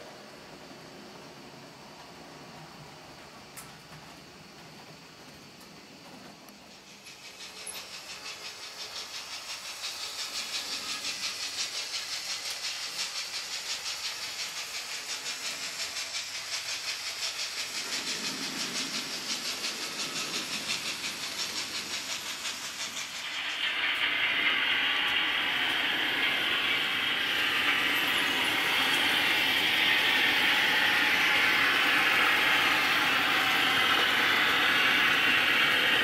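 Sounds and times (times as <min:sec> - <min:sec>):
steam engine chuffing: 0:06.0 - 0:36.0.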